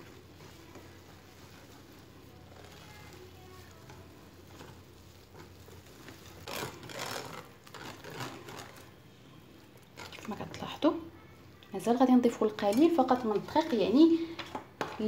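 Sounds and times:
whisk scraping glass bowl: 0.0s - 8.9s.

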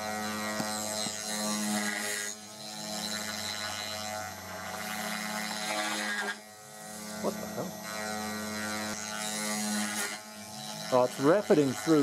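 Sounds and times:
axis motors whining: 0.0s - 12.0s
router spindle humming: 0.0s - 12.0s.

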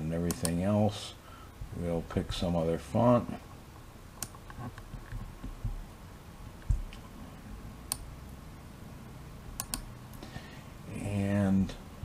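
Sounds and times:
computer mouse clicks: 0.3s - 0.6s, 4.2s - 5.2s, 9.6s - 9.9s.

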